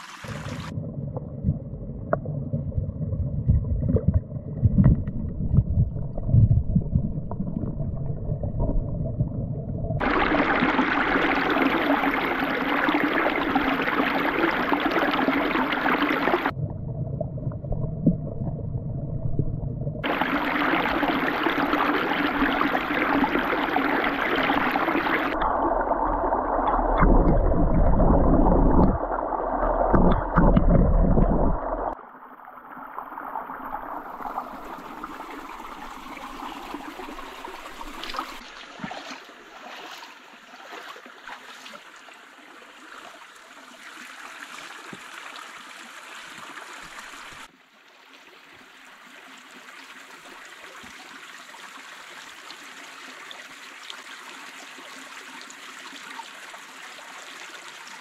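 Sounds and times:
stream trickling over rocks: 0.0s - 0.8s, 10.0s - 16.6s, 20.0s - 58.0s
muffled underwater gurgling: 1.3s - 16.8s, 17.5s - 32.0s.

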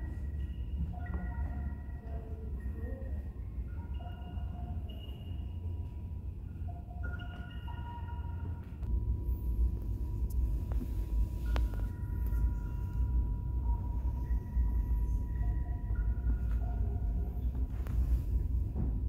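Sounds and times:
faint distant music: 0.0s - 19.0s
low rumble: 8.6s - 19.0s.

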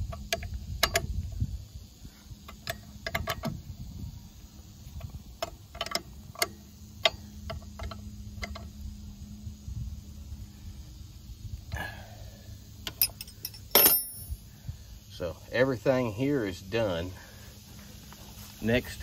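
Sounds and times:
ratchet wrench clicking: 0.0s - 1.3s
low hum: 0.0s - 15.7s.

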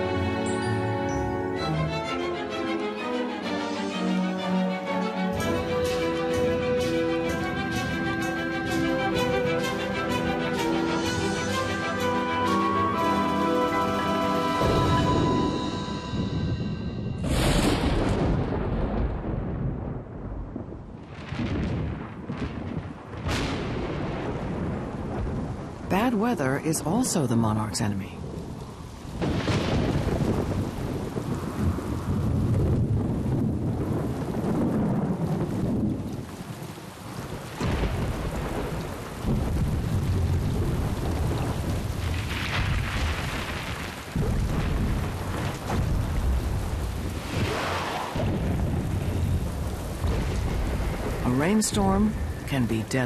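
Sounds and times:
steady rain: 0.0s - 53.0s
thunder rumbling: 5.4s - 53.0s
sharp thunder clap: 14.6s - 25.9s, 29.1s - 36.6s, 37.2s - 51.3s.

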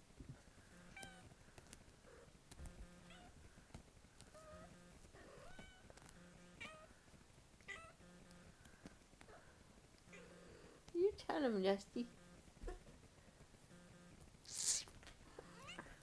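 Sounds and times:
kittens mewing: 14.5s - 16.0s.

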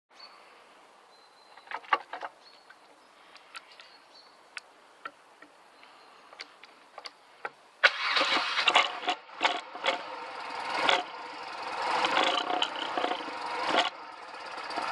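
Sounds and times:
motorcycle engine starting: 7.8s - 14.9s.

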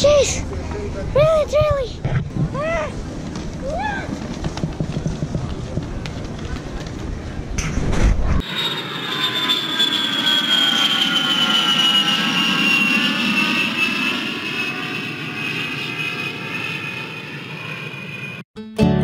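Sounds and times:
jet engines whining: 8.4s - 18.4s.

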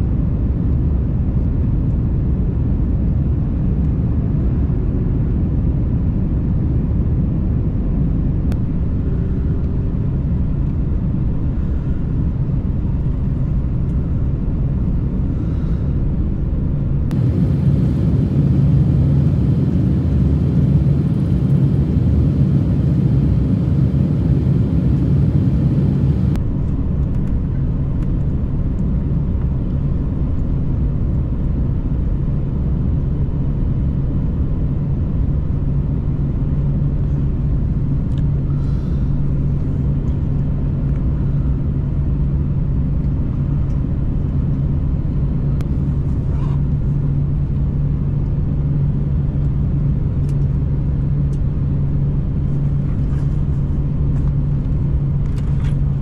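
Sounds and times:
jet engine and airflow in cabin: 0.0s - 56.0s.

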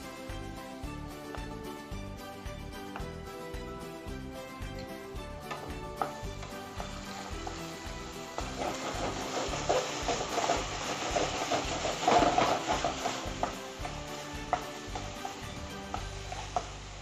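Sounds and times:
sauce sizzling: 0.0s - 17.0s
spatula scraping a pan: 6.4s - 16.8s.

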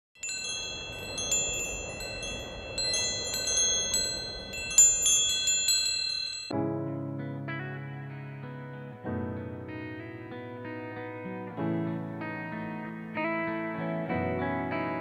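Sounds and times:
metal wind chime ringing: 0.2s - 6.6s
guitar music: 6.5s - 15.0s.

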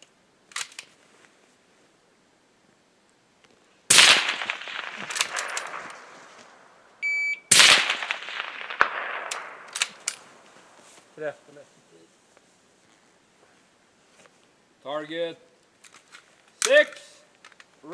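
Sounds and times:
rifle shots with echo: 3.9s - 6.8s, 7.5s - 10.5s
sharp clicks: 4.0s - 6.6s, 7.6s - 10.4s
short beep: 7.0s - 7.5s.

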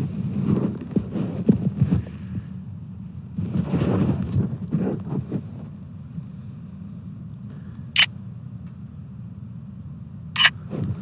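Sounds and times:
steady low rumble: 0.0s - 11.0s
camera shutter click: 10.4s - 10.6s.

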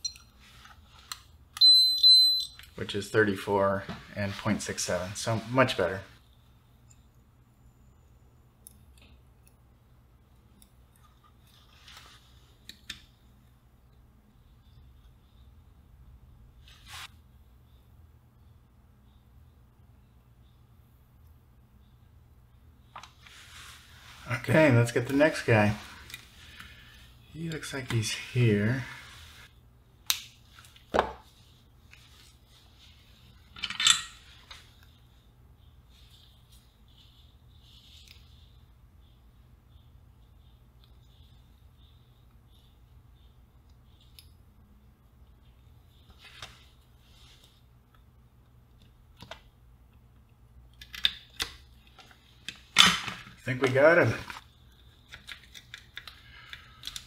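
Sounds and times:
small clicks and scratches of wires: 10.3s - 13.1s, 36.0s - 39.2s, 40.7s - 44.4s, 54.3s - 57.0s
crackly clicks of handling: 30.0s - 30.9s, 47.9s - 57.0s.

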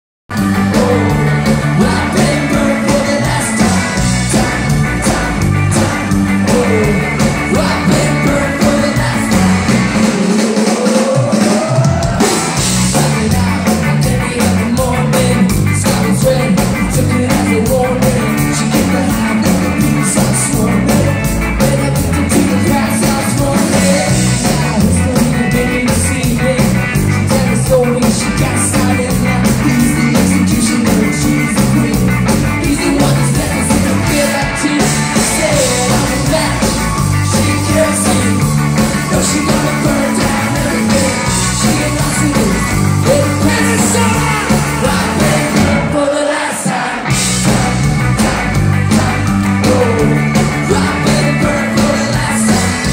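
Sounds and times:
bass guitar: 0.3s - 52.9s
drums: 0.3s - 52.9s
electric guitars: 0.3s - 52.9s.

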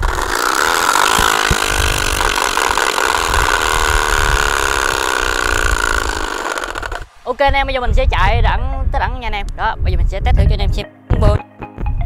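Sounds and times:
bicycle spokes buzzing: 0.0s - 7.2s.

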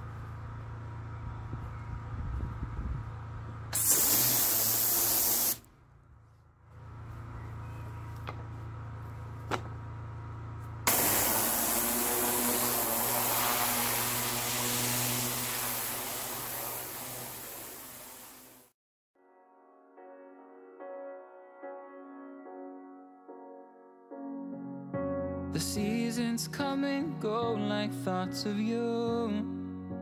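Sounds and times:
machine low hum: 0.0s - 3.8s, 5.6s - 18.7s
pressure washer spray hissing: 3.8s - 5.7s, 10.9s - 18.7s.

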